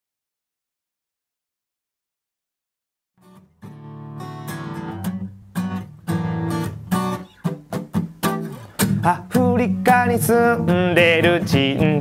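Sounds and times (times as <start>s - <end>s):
acoustic guitar strumming chords: 3.2s - 12.0s.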